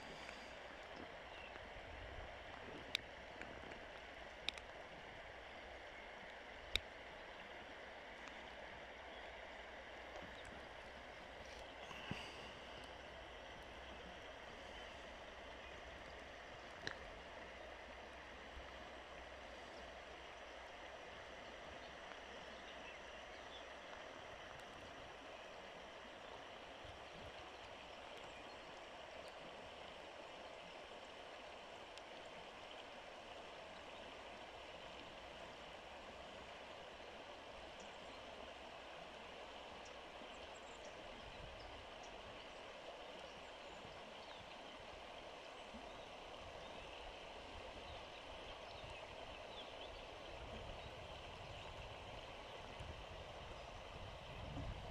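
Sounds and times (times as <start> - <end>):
river running over pebbles: 0.0 - 54.9
small click: 4.4 - 4.8.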